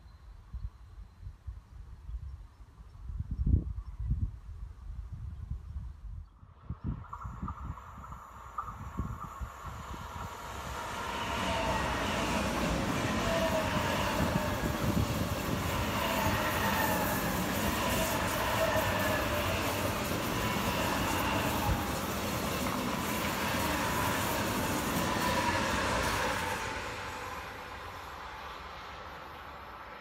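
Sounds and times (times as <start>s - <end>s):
wheels rumbling on rail: 6.1s - 30.0s.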